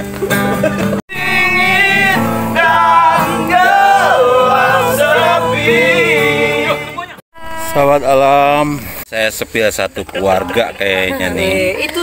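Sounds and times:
instrumental backing: 0.3s - 9.0s
person singing: 1.1s - 8.4s.

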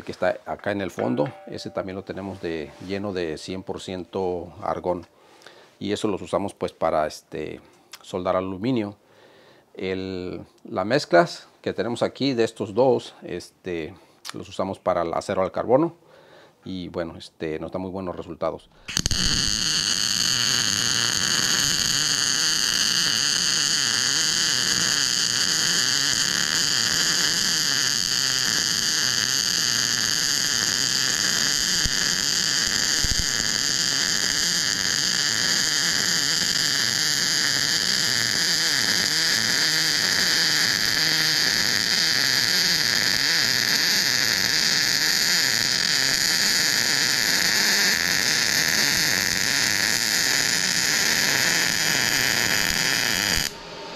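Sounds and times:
welding arc hissing: 18.9s - 53.9s.

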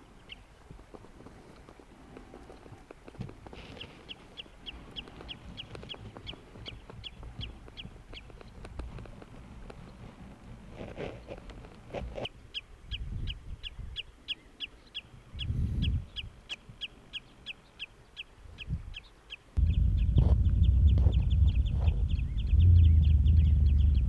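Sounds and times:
small bird calling: 12.1s - 24.0s
loud low rumble: 19.6s - 24.0s.

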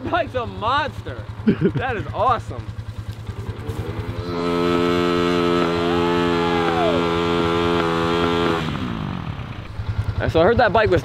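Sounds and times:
dirt bike engine revving: 0.1s - 11.0s.

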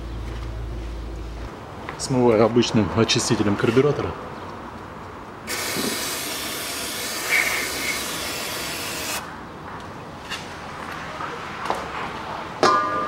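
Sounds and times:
aerosol spray hissing: 5.5s - 9.2s.

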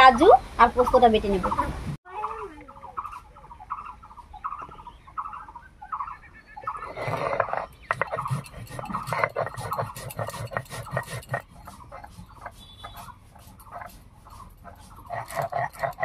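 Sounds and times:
stone grating on stone: 6.8s - 16.0s.

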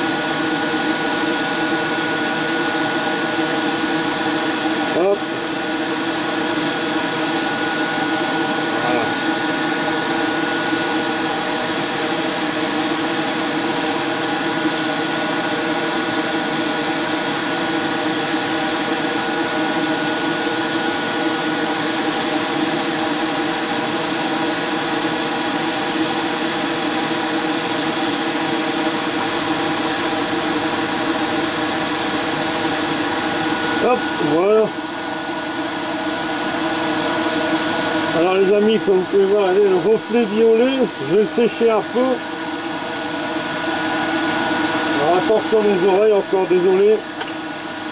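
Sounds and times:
airbrush air hissing: 0.0s - 20.3s, 21.9s - 34.4s.

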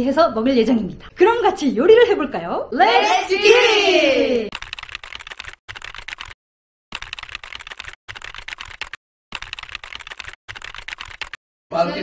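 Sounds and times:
keyboard keys clicking: 4.6s - 6.3s, 7.0s - 11.4s.

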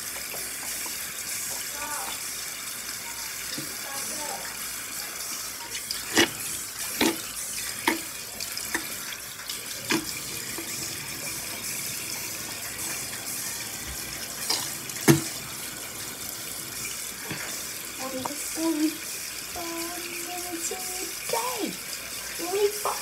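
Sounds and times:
tap running into sink: 3.4s - 3.8s, 5.6s - 18.9s.

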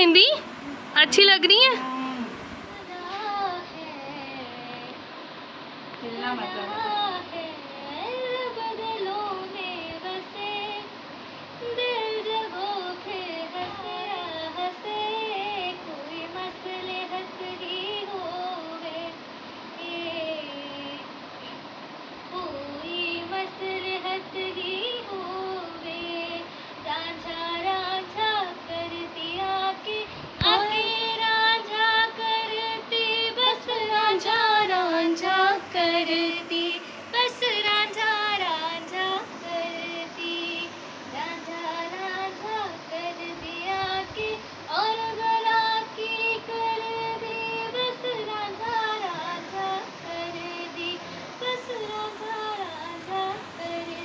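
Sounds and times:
high singing voice: 0.0s - 5.0s, 5.9s - 11.0s, 22.3s - 54.0s.

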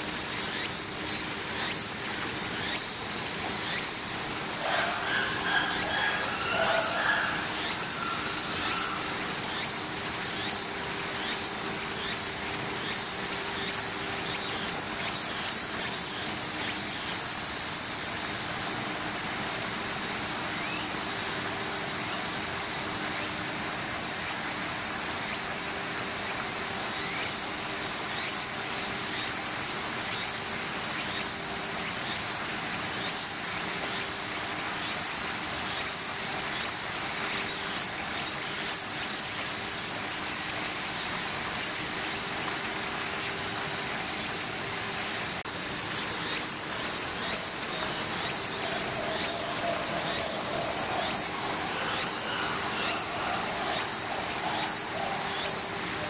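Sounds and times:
cicada chorus: 0.0s - 56.0s.

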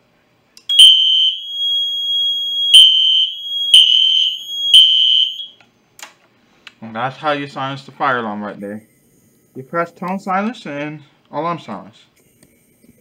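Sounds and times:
fire alarm horn tone: 0.7s - 5.6s.

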